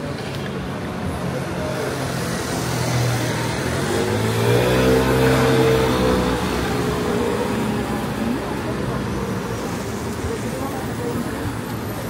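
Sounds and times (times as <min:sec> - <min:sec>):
vehicle engine passing by: 0:02.4 - 0:09.8.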